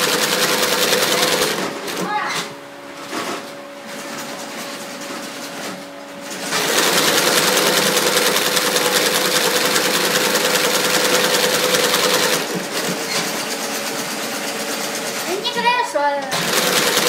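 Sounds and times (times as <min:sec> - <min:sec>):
sewing machine stitching clatter: 0:00.0 - 0:02.0, 0:06.3 - 0:13.6, 0:16.3 - 0:17.0
sewing machine motor humming: 0:00.0 - 0:02.2, 0:06.2 - 0:15.6, 0:16.2 - 0:17.0.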